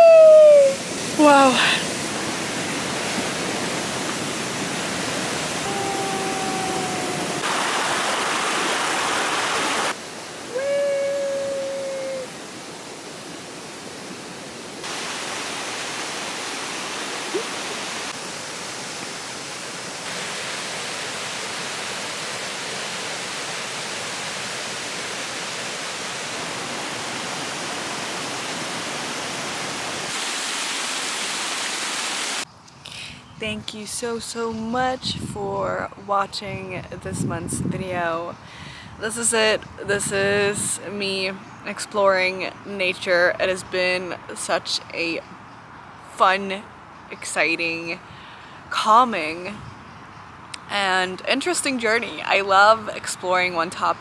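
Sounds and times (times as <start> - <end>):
river rapids rushing: 0.0 - 32.4.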